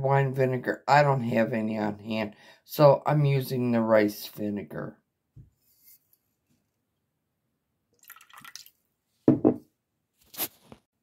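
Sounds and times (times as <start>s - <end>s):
liquid splashes: 8.0s - 8.8s
vinegar trickling into bowl: 8.0s - 8.8s.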